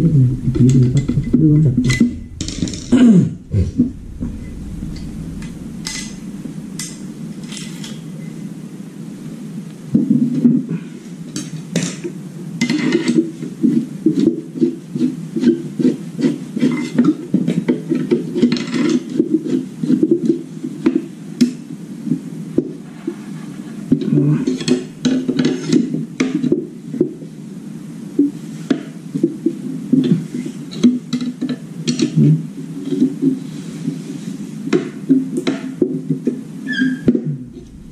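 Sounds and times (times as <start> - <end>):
steady low hum: 0.0 - 9.5, 37.1 - 37.9.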